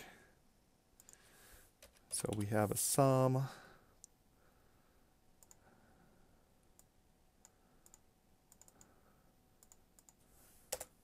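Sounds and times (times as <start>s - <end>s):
computer mouse and keyboard clicks: 6.8s - 8.9s.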